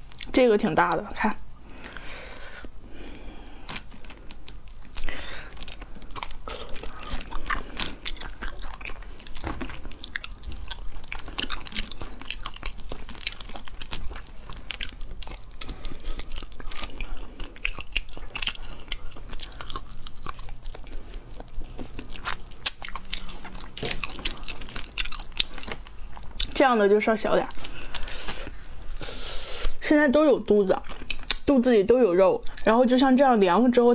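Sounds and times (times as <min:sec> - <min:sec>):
wet chewing: 0:00.0 - 0:31.8
shrimp shells cracking and crunching: 0:03.6 - 0:26.6.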